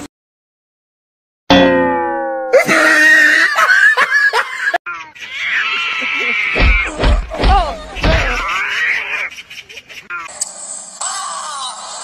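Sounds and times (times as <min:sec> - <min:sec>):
cats yowling: 0:05.2 - 0:07.0
high squeaky voice-like sound: 0:11.0 - 0:12.0.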